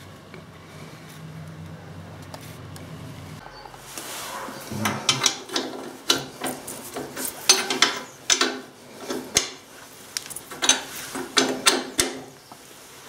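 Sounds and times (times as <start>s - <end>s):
spanner metal clicks: 5.1s - 9.6s, 10.2s - 12.4s.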